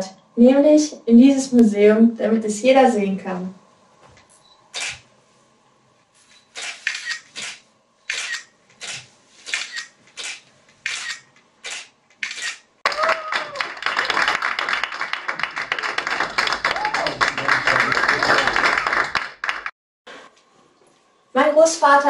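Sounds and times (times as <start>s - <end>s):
audience clapping: 12.8s - 19.7s.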